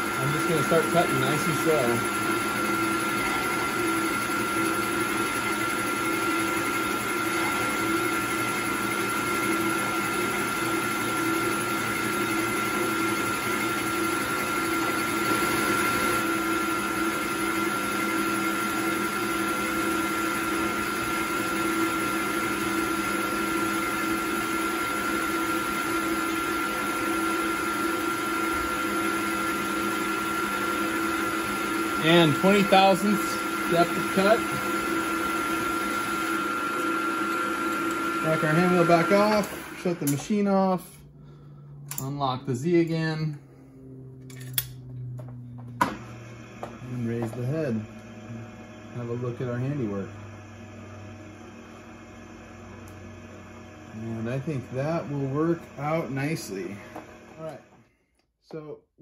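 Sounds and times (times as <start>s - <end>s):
end mill cutting metal: 0.0s - 41.0s
milling machine motor whine: 0.0s - 57.8s.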